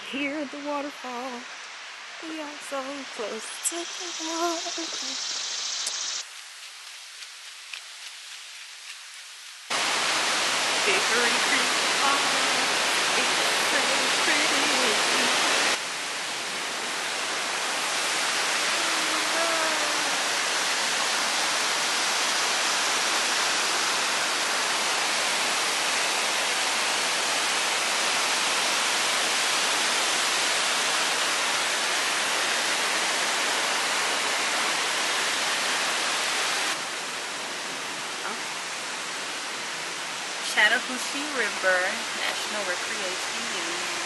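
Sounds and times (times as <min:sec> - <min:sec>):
water rushing over rocks: 0:09.7 - 0:44.0.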